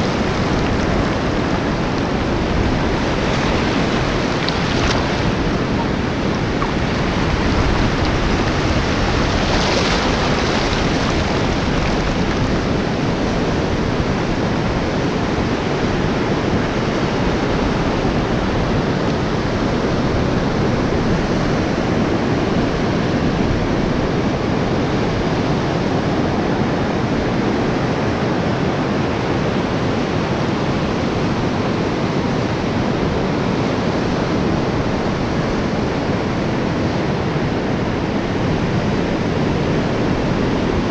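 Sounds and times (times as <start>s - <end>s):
ocean surf breaking: 0.0s - 23.8s
wind buffeting microphone: 0.0s - 40.9s.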